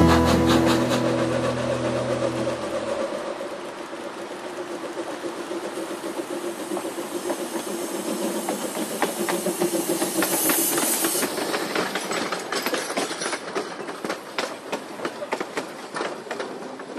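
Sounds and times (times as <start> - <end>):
loud steam hiss: 0.0 - 12.6
steam locomotive low hum: 0.0 - 16.9
train wheels clicking on rail joints: 0.0 - 16.9.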